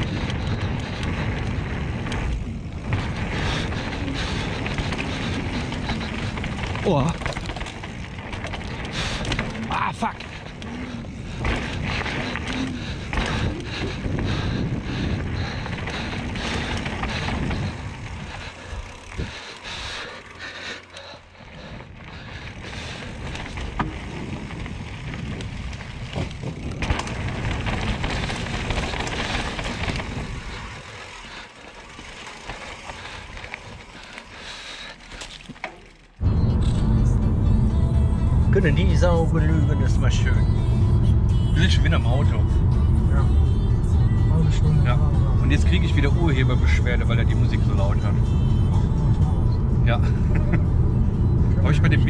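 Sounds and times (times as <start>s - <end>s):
wind on microphone: 0.0s - 6.8s, 10.8s - 19.4s, 22.1s - 30.8s
tyres rolling over dirt: 0.0s - 36.4s
bike rattling over bumps: 0.0s - 36.5s, 44.3s - 52.0s.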